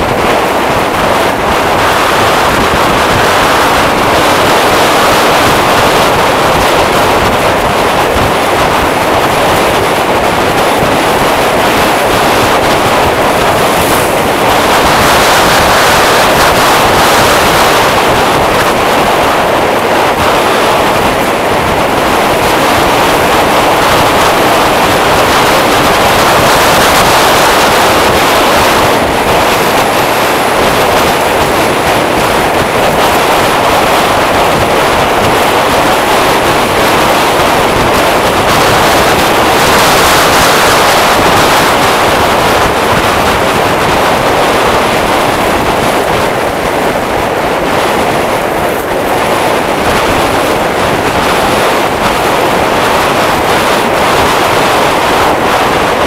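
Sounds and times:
scooter road noise: 0.0s - 56.0s
wind buffeting microphone: 0.0s - 56.0s.

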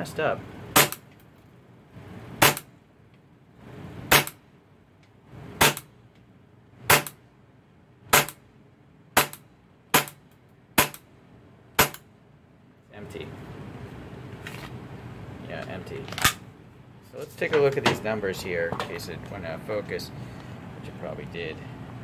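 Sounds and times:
airsoft pistol shots: 0.7s - 1.0s, 2.4s - 2.7s, 4.1s - 4.4s, 5.6s - 5.9s, 6.9s - 7.2s, 8.1s - 8.4s, 9.2s - 10.2s, 10.8s - 11.0s, 11.8s - 12.0s.

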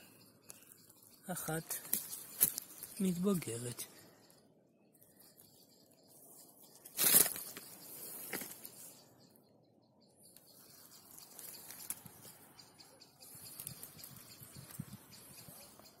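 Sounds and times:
rustling in leaf litter: 6.8s - 8.5s.

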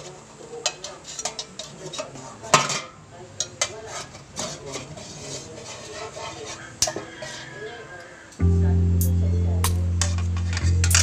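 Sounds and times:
metal utensil scraping fryer basket: 0.0s - 8.2s.

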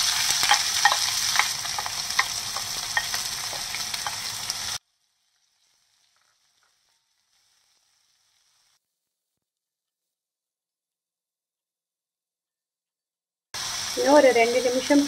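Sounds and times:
onions sizzling in hot oil: 0.0s - 8.8s, 13.6s - 15.0s.

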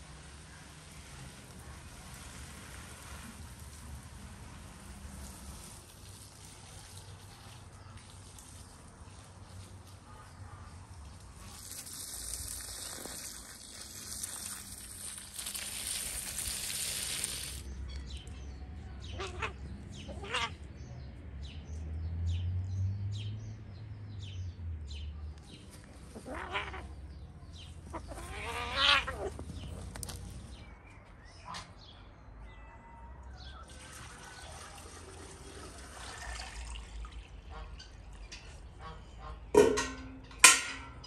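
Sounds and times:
farm animals bleating: 27.9s - 29.4s.

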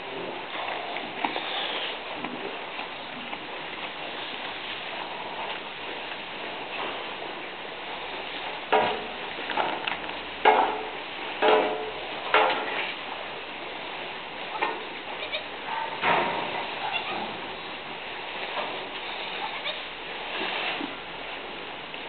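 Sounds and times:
background hiss: 0.0s - 22.0s
goats bleating: 15.2s - 15.5s.

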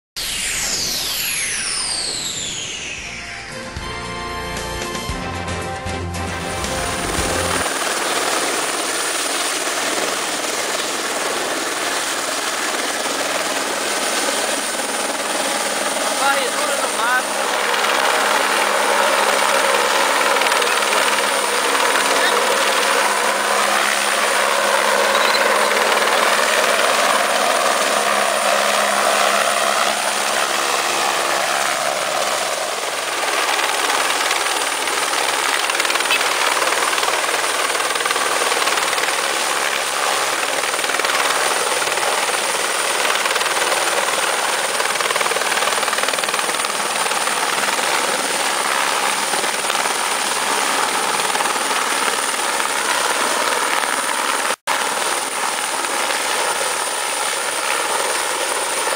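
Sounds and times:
helicopter rotor and turbine: 0.2s - 5.0s, 6.2s - 58.9s.

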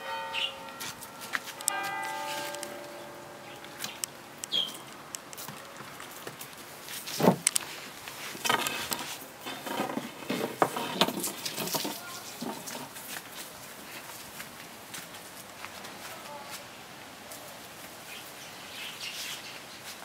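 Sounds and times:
puppy paws pattering on boards: 3.6s - 9.1s, 10.4s - 16.6s
brush scraping wooden decking: 5.4s - 13.6s.

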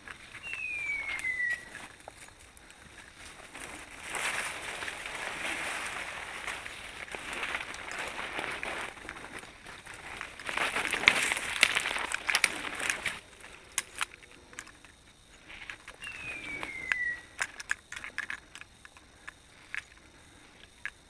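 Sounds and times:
footsteps crunching through dry leaves: 0.0s - 13.7s
branches brushing against clothing: 0.0s - 18.7s.

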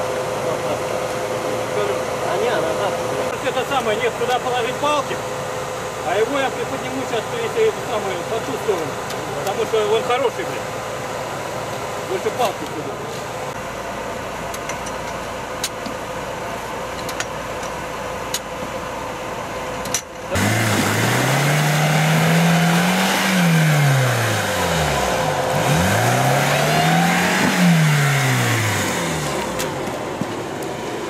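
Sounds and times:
engine idling: 0.0s - 31.0s
engine revving: 20.3s - 30.1s.

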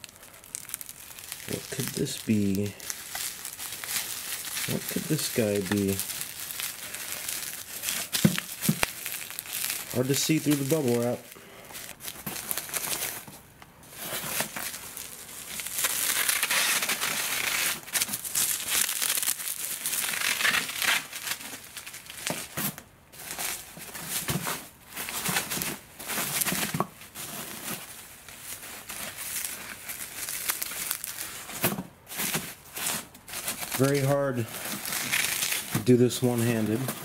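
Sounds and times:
bubble wrap crinkling: 0.0s - 37.0s.

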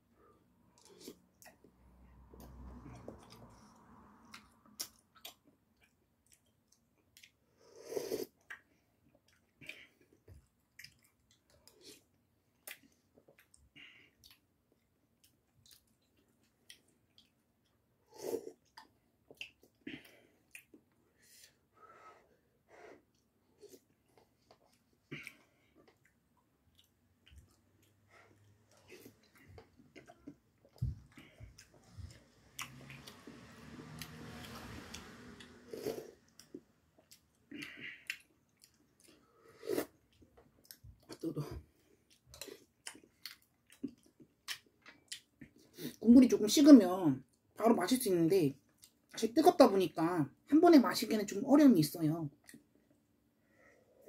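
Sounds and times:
soft chewing: 0.1s - 46.0s, 48.6s - 49.2s, 52.3s - 54.0s
loud slurps: 32.6s - 36.6s.

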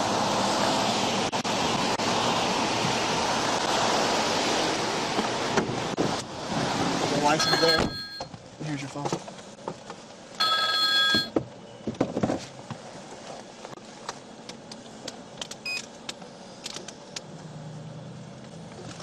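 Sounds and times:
high beep: 7.4s - 8.3s, 10.4s - 11.3s.

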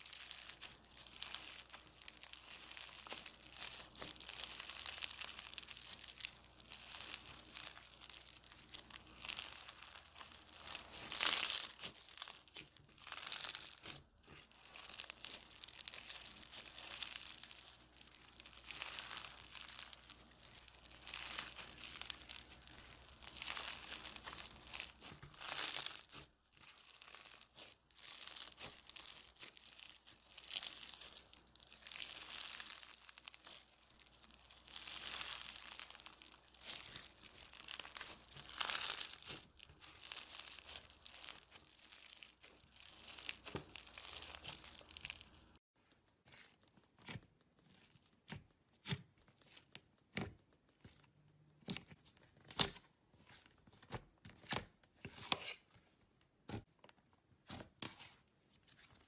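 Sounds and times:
foam-bead slime crackling: 0.0s - 45.6s.

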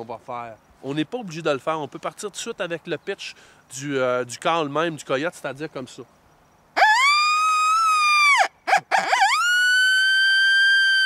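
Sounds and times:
coyote howler call: 6.8s - 11.0s.

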